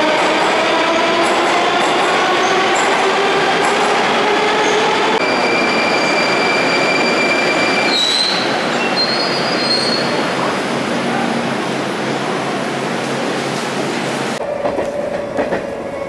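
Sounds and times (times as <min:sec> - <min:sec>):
train brake squeals: 0:05.2 - 0:10.2
train rumbling past: 0:13.8 - 0:16.0.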